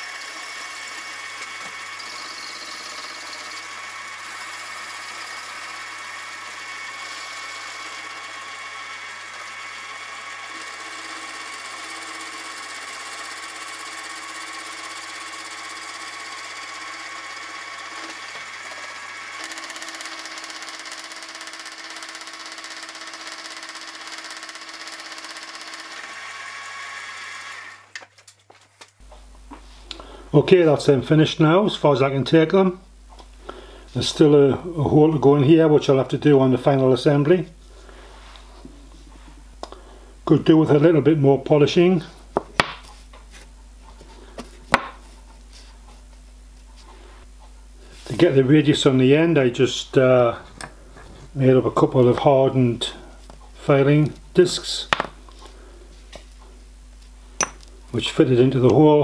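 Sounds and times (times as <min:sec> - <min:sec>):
milling machine whining: 0:00.0 - 0:28.0.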